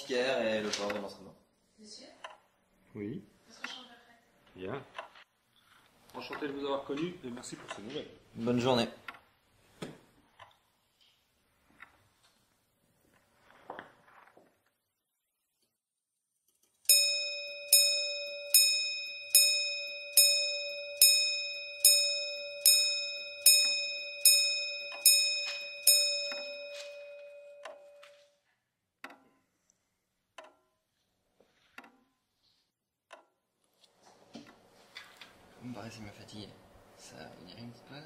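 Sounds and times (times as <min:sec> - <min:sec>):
clock bell striking: 0:16.9 - 0:28.2.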